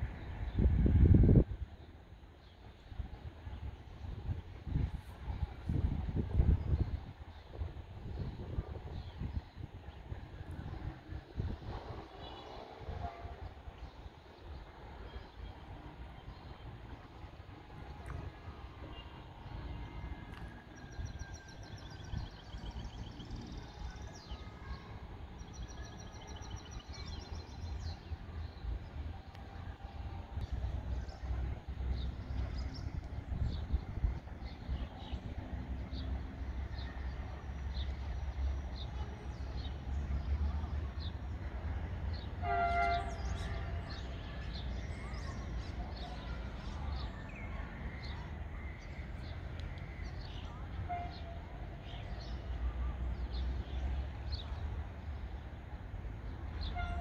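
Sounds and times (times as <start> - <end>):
songbird singing: 5.5 - 55.6
train horn: 12.2 - 13.8, 42.3 - 44.0, 50.7 - 51.5, 56.6 - 57.0.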